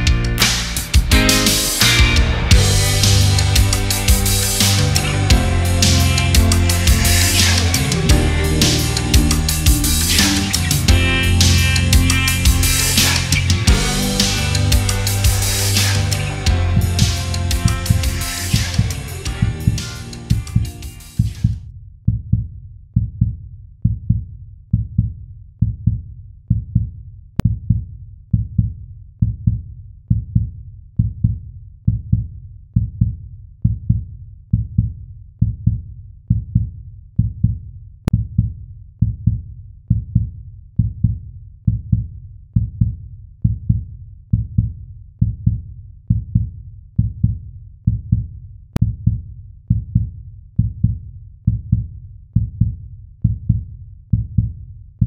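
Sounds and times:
heartbeat thuds: 0:08.0 - 0:12.9.

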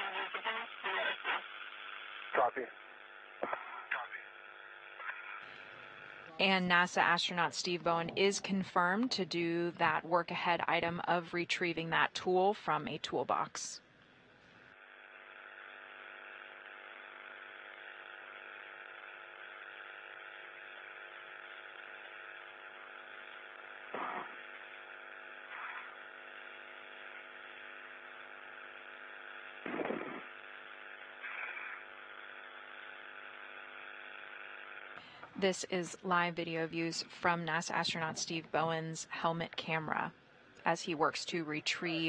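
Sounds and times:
short radio blips: 0:00.0 - 0:02.8, 0:29.6 - 0:30.3, 0:31.2 - 0:31.9
radio hiss and hum: 0:00.0 - 0:42.0.

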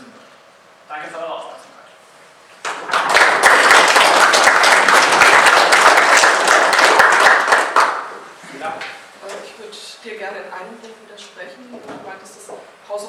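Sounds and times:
audience applauding: 0:02.6 - 0:08.1.

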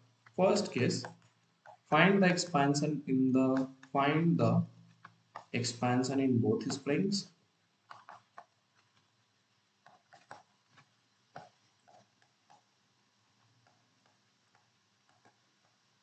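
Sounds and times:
stylus tapping on pen tablet: 0:07.9 - 0:09.0, 0:09.8 - 0:12.7.

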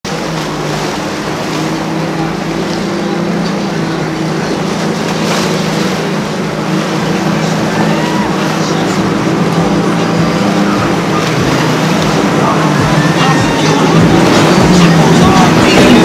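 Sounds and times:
boat outboard engines droning: 0:00.0 - 0:16.0
water rushing from hull and wake: 0:00.0 - 0:16.0.

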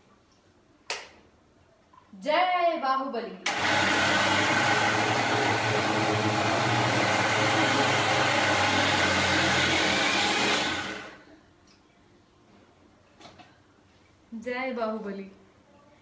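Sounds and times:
mixer grinder motor running: 0:03.5 - 0:11.2.

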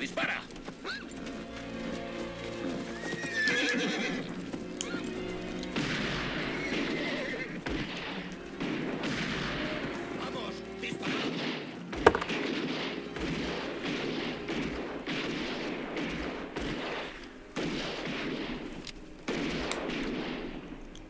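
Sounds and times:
gunshots: 0:05.4 - 0:21.0.

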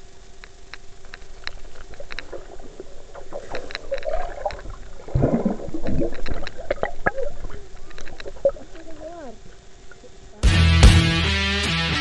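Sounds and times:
underwater bubbling: 0:00.0 - 0:10.4
underwater clicks: 0:00.3 - 0:10.3.

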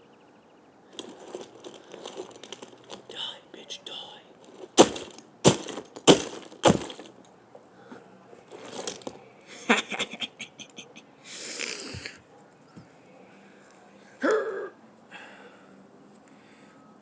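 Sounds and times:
rustle: 0:00.9 - 0:03.6, 0:04.3 - 0:10.1
broken plastic pieces rattling: 0:01.0 - 0:03.1, 0:04.4 - 0:07.3, 0:08.5 - 0:09.2
brick smashing plastic toy: 0:04.6 - 0:07.3.

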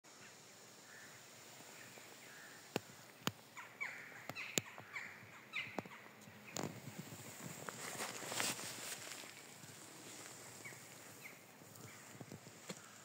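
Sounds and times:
short bird calls: 0:00.1 - 0:06.6
footsteps through dry leaves: 0:07.2 - 0:13.0
twigs snapping underfoot: 0:11.7 - 0:13.0.

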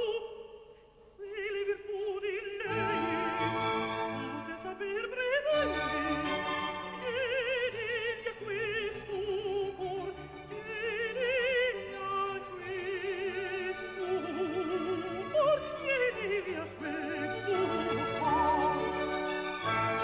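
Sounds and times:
countertenor singing operatic aria: 0:00.0 - 0:20.0
orchestral accompaniment: 0:02.7 - 0:04.7, 0:14.2 - 0:20.0.

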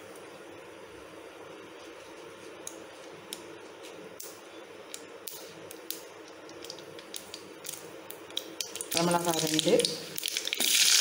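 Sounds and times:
seeds spluttering in hot oil: 0:06.6 - 0:11.0.

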